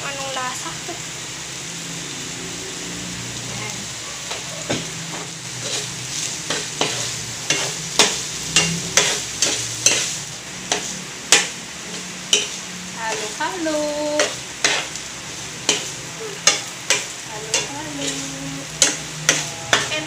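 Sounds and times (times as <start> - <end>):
food sizzling: 0.0 - 20.0
spatula scraping frying pan: 4.2 - 20.0.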